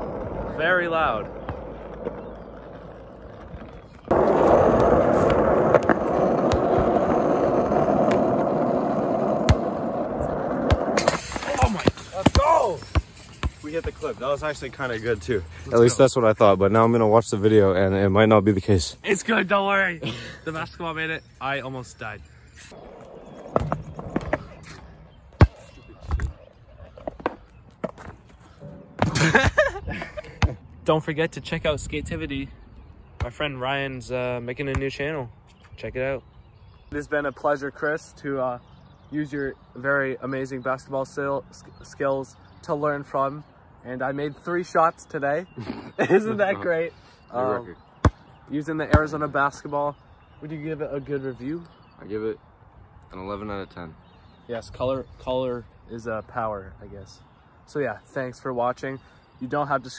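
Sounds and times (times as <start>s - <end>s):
skateboard wheels rolling on asphalt: 0.0s - 12.8s, 22.8s - 25.0s.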